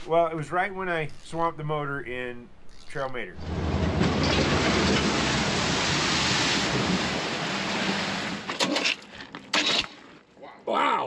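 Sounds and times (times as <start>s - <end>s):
water splashing against truck: 3.4s - 9.2s.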